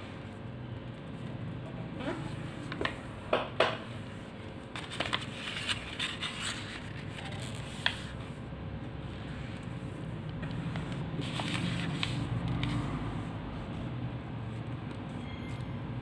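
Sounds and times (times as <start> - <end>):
paper rustling and scraping: 4.7 - 8.4, 9.1 - 13.9.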